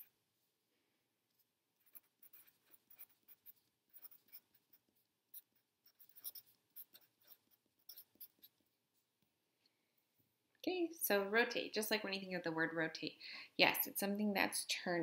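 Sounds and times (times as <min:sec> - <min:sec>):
marker scratching on paper: 0:01.8 - 0:08.6.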